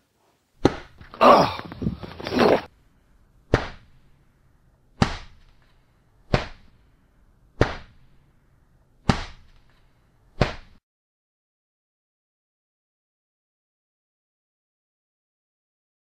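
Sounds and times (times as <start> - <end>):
person crying out: 1.2 - 2.7.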